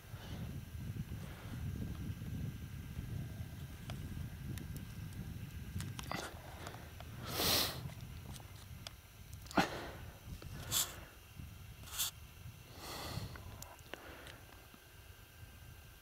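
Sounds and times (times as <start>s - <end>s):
low wind rumble: 0.0s - 16.0s
breathy puffs: 9.4s - 11.2s.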